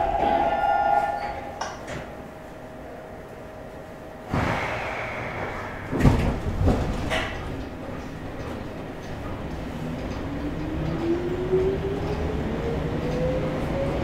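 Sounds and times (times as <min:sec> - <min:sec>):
tone: 0:00.0 - 0:02.0
sliding doors swishing shut: 0:04.3 - 0:07.6.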